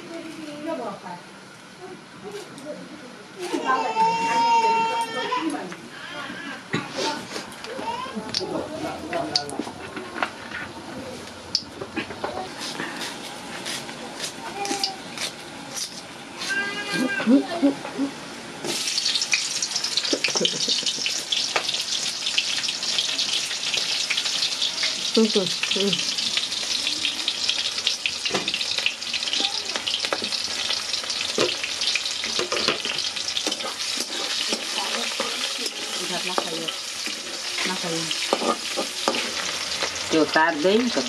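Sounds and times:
oil crackling and popping: 0:13.0 - 0:16.0, 0:18.6 - 0:41.0
food sizzling in hot oil: 0:14.5 - 0:41.0.

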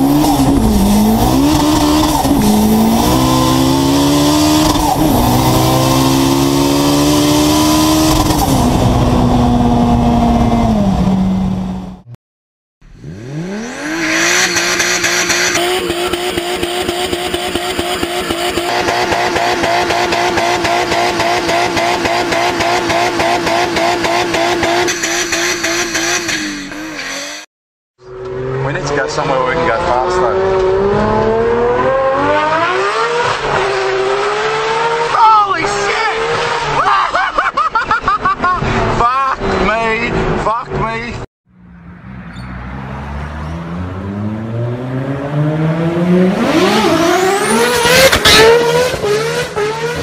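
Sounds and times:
car engine at high speed: 0:00.0 - 0:12.2, 0:12.8 - 0:50.0
car engine high steady note: 0:12.8 - 0:27.4.

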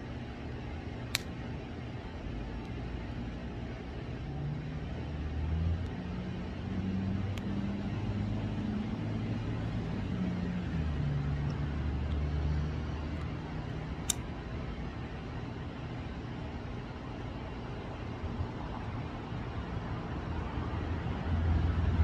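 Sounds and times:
sharp click: 0:14.0 - 0:14.2.

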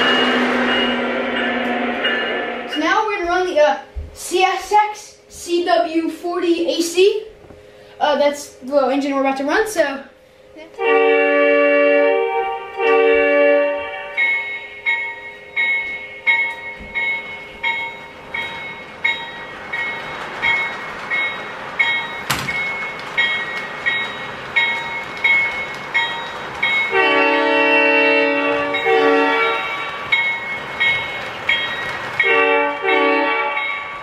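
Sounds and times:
locomotive bell ringing: 0:00.0 - 0:03.7, 0:10.8 - 0:34.0
locomotive running noise: 0:10.6 - 0:34.0
model locomotive horn blasts: 0:10.7 - 0:14.3, 0:26.9 - 0:30.0, 0:32.3 - 0:33.7.

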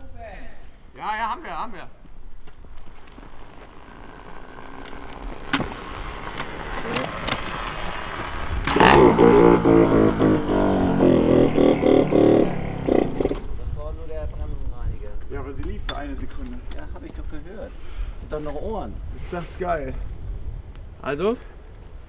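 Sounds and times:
footsteps: 0:02.0 - 0:07.7
motorbike rolling: 0:02.3 - 0:17.5.

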